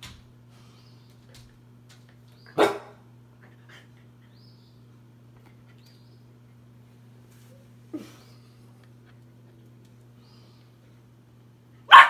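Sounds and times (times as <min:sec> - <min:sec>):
steady low hum: 0:00.0 - 0:12.0
puppy barking: 0:02.6 - 0:03.0.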